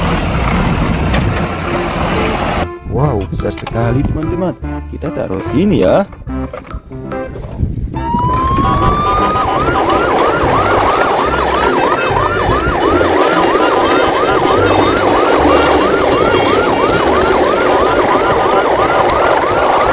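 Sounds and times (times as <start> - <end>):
steady noisy rumble: 0.0 - 3.2, 8.8 - 19.9
electronic siren wailing and yelping: 8.0 - 19.9.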